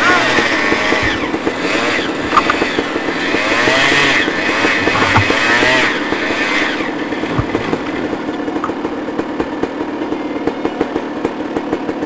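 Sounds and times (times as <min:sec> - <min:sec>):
dirt bike engine idling: 0:00.0 - 0:12.0.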